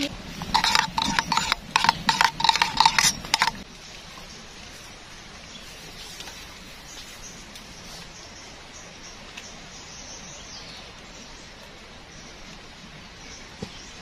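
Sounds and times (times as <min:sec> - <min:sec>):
faint forest background: 0:00.0 - 0:14.0
spoon clinking in metal kettle: 0:00.4 - 0:03.6.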